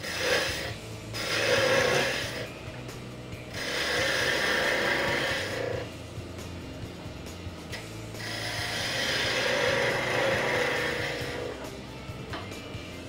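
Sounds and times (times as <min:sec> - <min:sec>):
chisel cutting wood on a lathe: 0:00.0 - 0:02.8, 0:03.4 - 0:06.0, 0:07.8 - 0:12.4.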